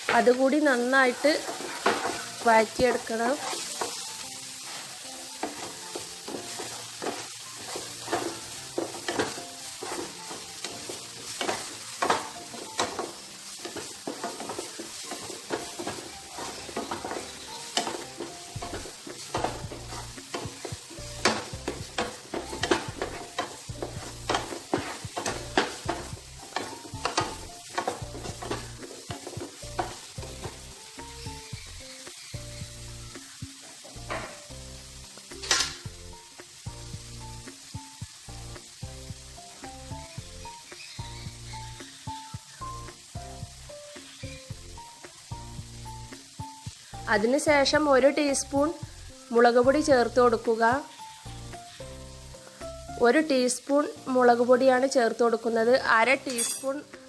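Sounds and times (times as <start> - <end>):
wooden spatula scraping a pan: 0.0 - 32.8
food sizzling in hot oil: 0.0 - 57.0.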